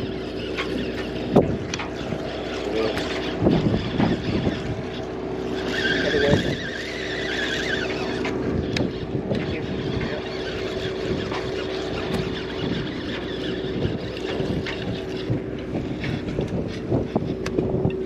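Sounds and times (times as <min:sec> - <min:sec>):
boat engine humming: 0:00.0 - 0:18.0
high squeal: 0:05.6 - 0:08.2.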